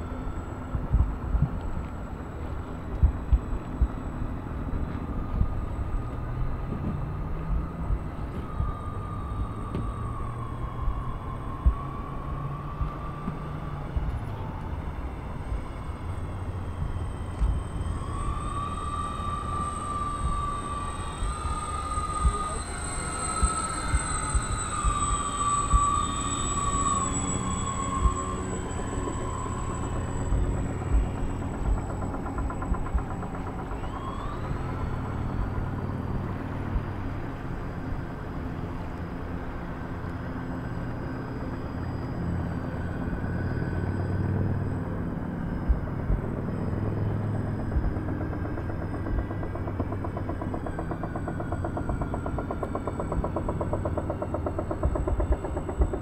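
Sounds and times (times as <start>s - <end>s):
model plane motors whining: 0.0s - 56.0s
wind buffeting microphone: 0.6s - 1.7s, 2.3s - 26.1s.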